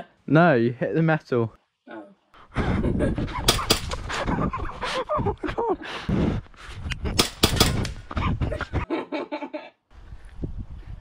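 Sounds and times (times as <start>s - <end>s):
people laughing: 2.6s - 6.1s, 8.1s - 9.8s.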